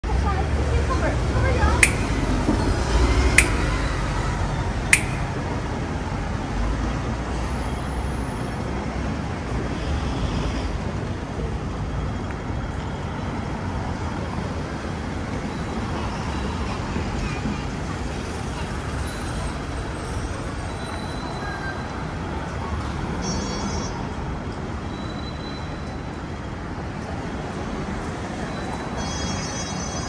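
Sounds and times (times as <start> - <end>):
passing vehicles rumbling: 0.0 - 30.0
sharp clicks: 1.8 - 2.2, 3.4 - 3.7, 4.9 - 5.4.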